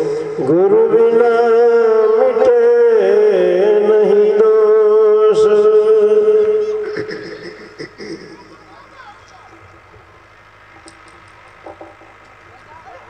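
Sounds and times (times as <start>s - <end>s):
man chanting into a microphone: 0.0s - 7.0s.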